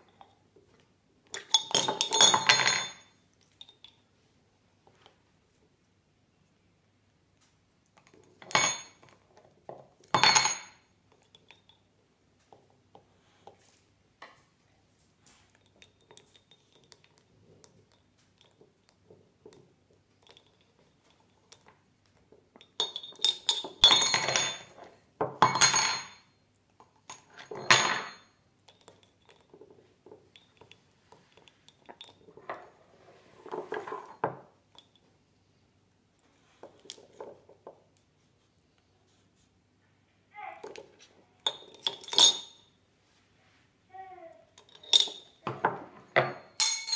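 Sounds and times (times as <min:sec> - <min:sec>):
teaspoon clinking in ceramic mug: 0:22.6 - 0:24.7.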